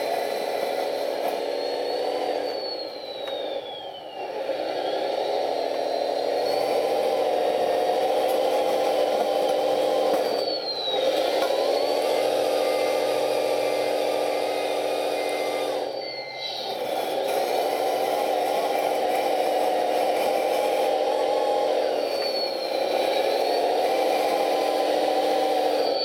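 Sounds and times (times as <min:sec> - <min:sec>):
electronic diesel engine sound: 0:00.0 - 0:26.0
high motor whine: 0:00.0 - 0:26.0
short reversing beeps: 0:00.3 - 0:07.6, 0:08.2 - 0:12.2, 0:14.7 - 0:17.0, 0:22.0 - 0:26.0.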